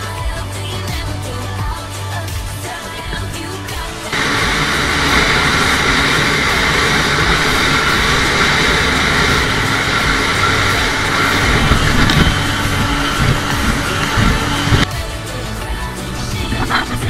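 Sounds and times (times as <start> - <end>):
music: 0.0 - 17.0
jet ski engine and water rush: 3.2 - 14.9.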